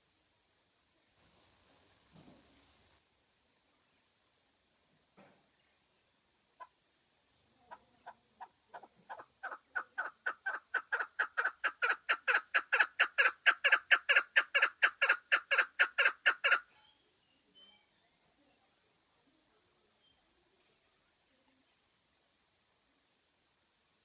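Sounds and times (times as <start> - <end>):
partridge repeated chuk calls: 8.0 - 17.0
faint high thin bird notes: 16.7 - 18.7, 19.9 - 20.9.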